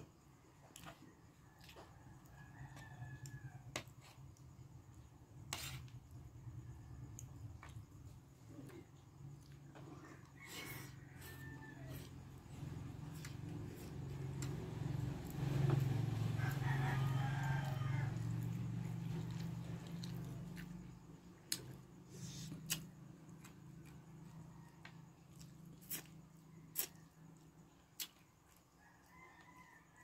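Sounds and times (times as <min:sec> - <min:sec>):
distant rooster crowing: 0:00.6 - 0:04.4, 0:08.5 - 0:21.2, 0:23.8 - 0:25.3, 0:28.7 - 0:30.0.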